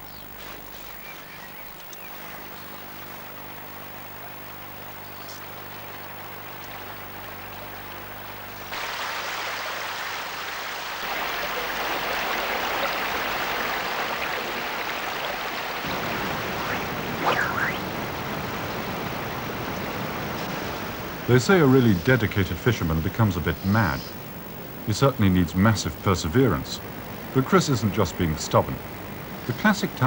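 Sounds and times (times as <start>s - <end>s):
rain pattering on water: 1.8s - 23.3s
rushing white water: 8.7s - 21.7s.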